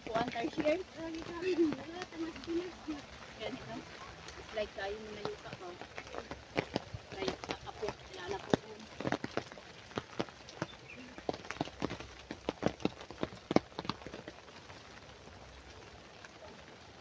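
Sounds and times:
raindrops tapping on umbrella: 0.0 - 17.0
soft rain patter: 0.0 - 17.0.

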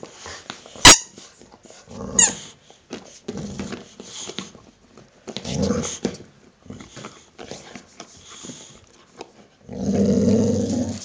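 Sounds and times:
dog growling: 5.4 - 7.3, 9.6 - 11.0.

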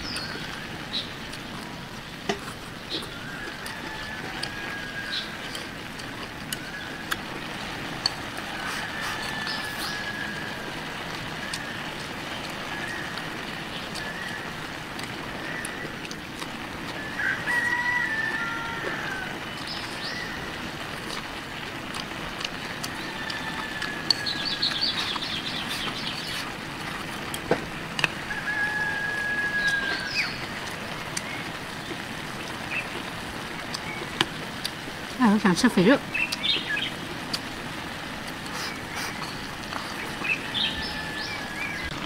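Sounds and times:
outdoor hiss: 0.0 - 42.0
rooster crowing: 3.1 - 5.8, 8.1 - 11.8, 16.9 - 20.7, 22.6 - 25.1, 28.0 - 30.6, 39.8 - 42.0.

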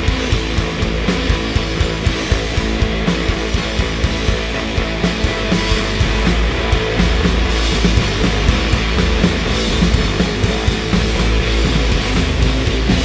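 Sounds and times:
bass guitar: 0.0 - 13.0
drum kit: 0.0 - 13.0
electric guitar: 0.0 - 13.0.

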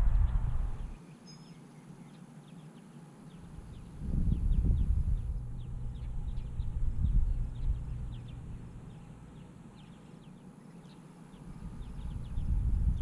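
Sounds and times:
low uneven rumble: 0.0 - 1.0, 3.4 - 10.0
faint bird chirps: 0.0 - 13.0.

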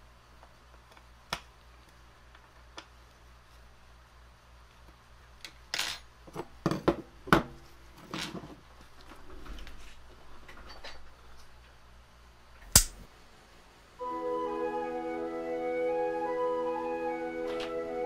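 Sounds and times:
sharp click: 12.7 - 13.0.

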